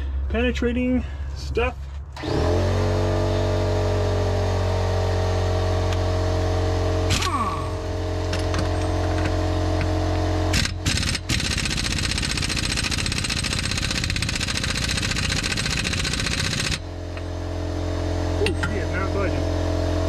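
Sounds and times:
steady low hum: 0.0 - 13.2
air impact wrench hammering: 7.0 - 9.9, 10.5 - 17.2.

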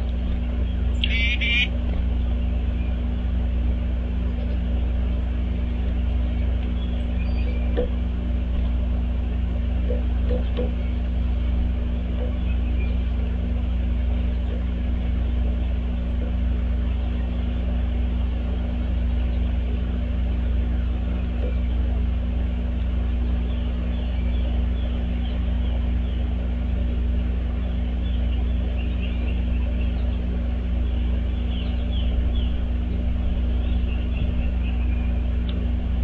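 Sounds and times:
constant hum: 0.0 - 36.0
low rumble: 0.0 - 36.0.

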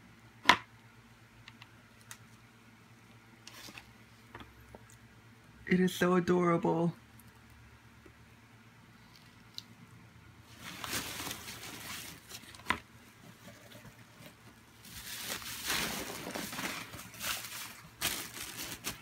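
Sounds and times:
packing peanuts and plastic rustling: 10.5 - 12.7, 13.3 - 19.0.

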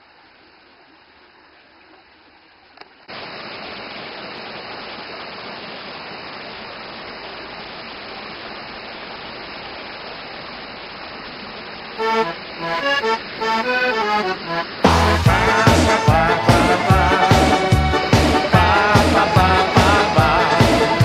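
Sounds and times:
faint click: 2.7 - 3.0
river water rushing: 3.1 - 21.0
accordion music: 12.0 - 21.0.

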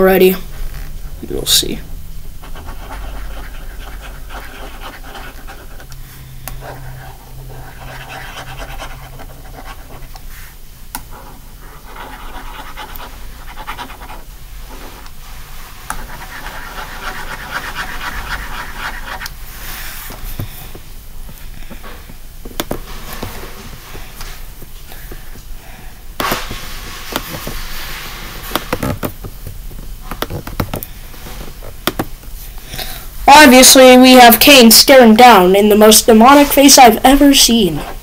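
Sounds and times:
steady low hum: 0.0 - 38.0.

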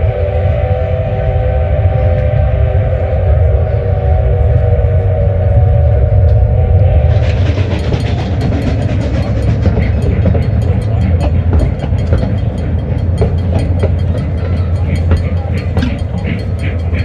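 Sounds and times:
train rumbling past: 0.0 - 17.0
held tone: 6.8 - 17.0
wheels clacking over rail joints: 7.1 - 17.0.

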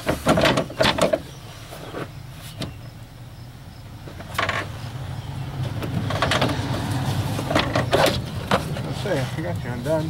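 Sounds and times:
clicks and knocks of engine parts: 0.0 - 2.9, 4.0 - 4.9, 5.6 - 10.0.

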